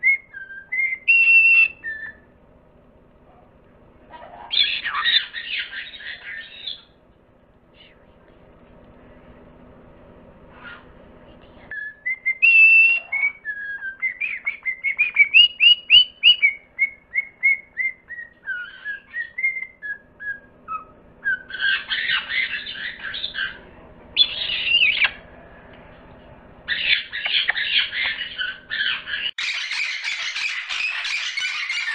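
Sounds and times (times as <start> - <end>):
parrot whistling: 0.0 - 2.3, 4.2 - 7.0, 11.7 - 23.6, 24.2 - 25.3, 26.7 - 31.9
parrot squawking: 4.1 - 7.0, 10.5 - 10.9, 11.7 - 25.4, 26.7 - 31.9.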